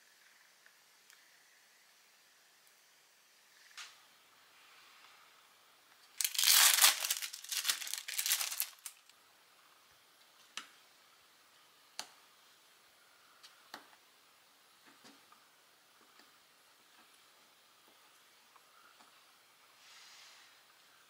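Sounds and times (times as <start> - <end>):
plastic film crinkling: 6.0 - 9.1.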